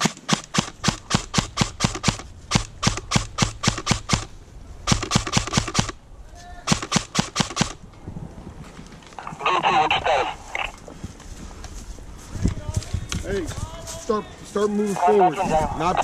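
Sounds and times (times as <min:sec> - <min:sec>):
airsoft rifle rapid shots: 0:00.0 - 0:06.0, 0:06.6 - 0:07.8.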